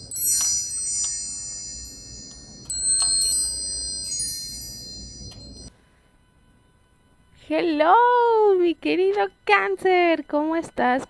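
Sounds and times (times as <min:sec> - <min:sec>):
bright high chimes ringing: 0:00.0 - 0:05.7.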